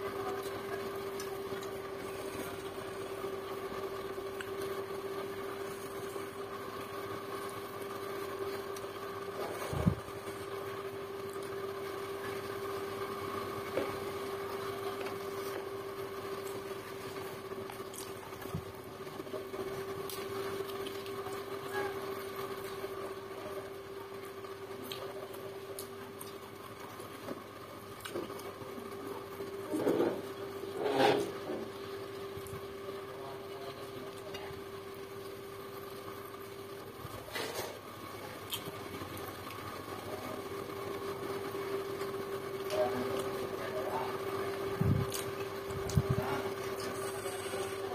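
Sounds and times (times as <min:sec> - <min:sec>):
steady motor hum: 0:00.0 - 0:47.9
chewing: 0:17.6 - 0:18.6, 0:24.8 - 0:26.8, 0:27.9 - 0:28.5, 0:38.4 - 0:39.6, 0:45.1 - 0:46.0.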